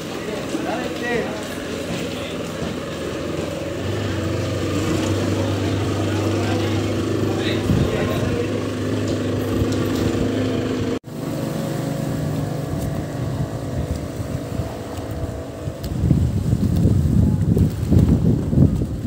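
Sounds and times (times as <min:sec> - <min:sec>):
outboard engine running: 0:00.0 - 0:19.0
wind buffeting microphone: 0:03.7 - 0:11.0, 0:12.2 - 0:19.0.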